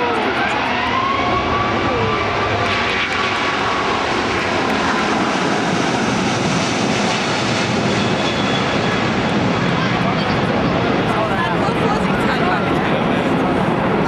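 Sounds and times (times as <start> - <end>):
jet engines roaring: 0.0 - 14.0.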